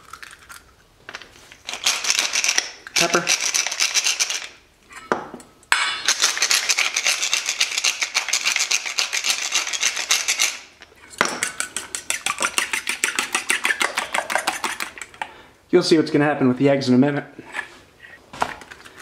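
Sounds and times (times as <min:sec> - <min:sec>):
pepper mill grinding: 0:01.5 - 0:04.6, 0:06.0 - 0:15.2
fork beating eggs in steel bowl: 0:06.1 - 0:15.2.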